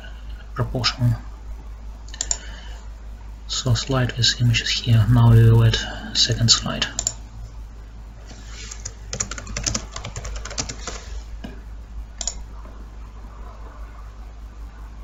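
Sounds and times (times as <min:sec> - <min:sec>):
keyboard typing: 0:08.7 - 0:11.2, 0:12.2 - 0:12.4.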